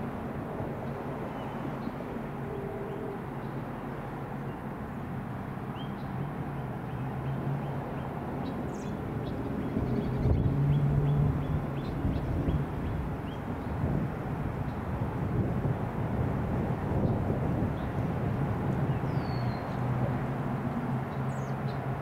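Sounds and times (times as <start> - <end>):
distant engine droning: 0.0 - 22.0
bird chirping: 18.9 - 19.9.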